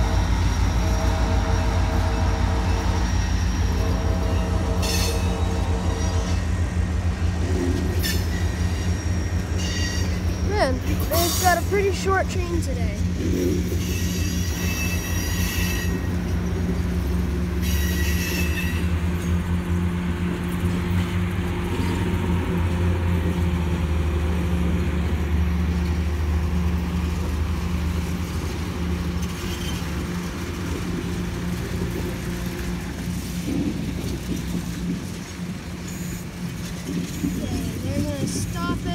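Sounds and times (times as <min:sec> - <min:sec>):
train cars rolling past: 0:00.0 - 0:38.9
high-pitched wheel squeals: 0:00.6 - 0:06.4, 0:07.9 - 0:10.6, 0:13.7 - 0:16.1, 0:17.6 - 0:18.9, 0:29.3 - 0:30.0.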